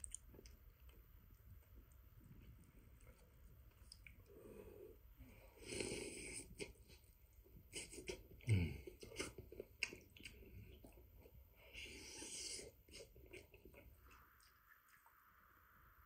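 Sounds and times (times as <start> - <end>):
mouth clicks and smacks: 0.0 - 1.1, 1.7 - 4.3, 7.7 - 11.1
man chewing wetly: 0.0 - 4.4, 5.6 - 15.1.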